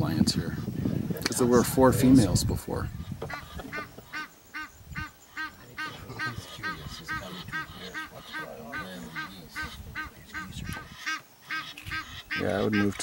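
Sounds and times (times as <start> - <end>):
bird honking call: 3.0 - 13.0.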